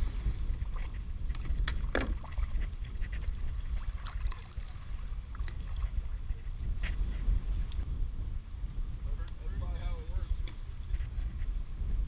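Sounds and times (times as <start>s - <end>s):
water lapping against kayak hull: 0.0s - 7.8s
wind rumbling on microphone: 0.0s - 12.0s.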